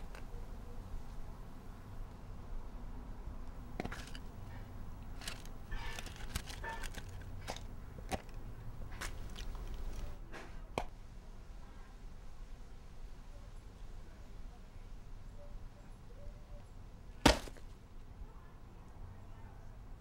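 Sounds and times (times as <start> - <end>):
metal tin clicking and rattling: 5.1 - 8.4.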